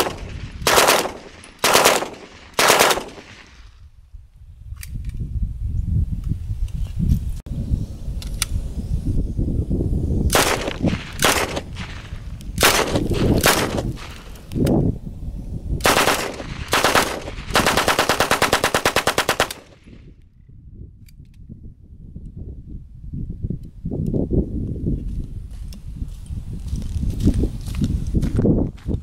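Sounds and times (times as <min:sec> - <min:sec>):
submachine gun bursts: 0:00.0 - 0:03.5, 0:15.8 - 0:19.7.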